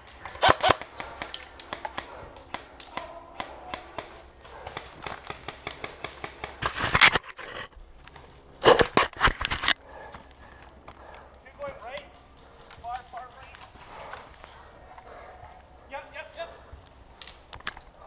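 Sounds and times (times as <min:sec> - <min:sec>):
airsoft rifle firing: 0:00.2 - 0:06.7
light clicks and snaps: 0:09.4 - 0:15.6, 0:16.8 - 0:17.9.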